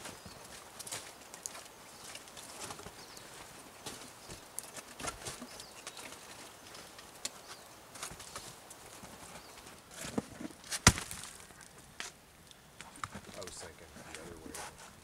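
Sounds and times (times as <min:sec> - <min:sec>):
firewood clicks and knocks: 0:00.0 - 0:15.0
log knocking against stacked wood: 0:10.7 - 0:11.4.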